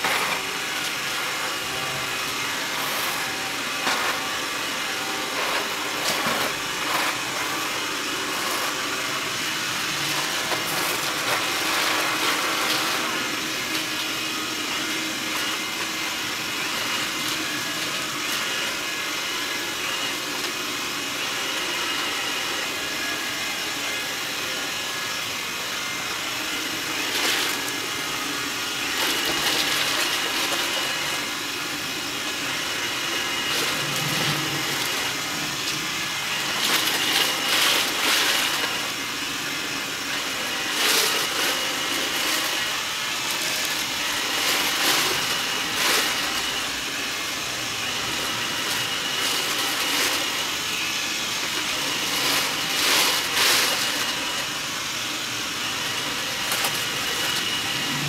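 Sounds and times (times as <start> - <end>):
robot vacuum whirring: 0.0 - 58.0.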